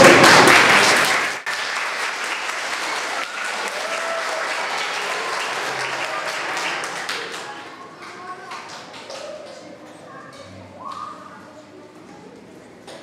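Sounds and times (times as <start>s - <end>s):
audience clapping: 0.0s - 10.4s.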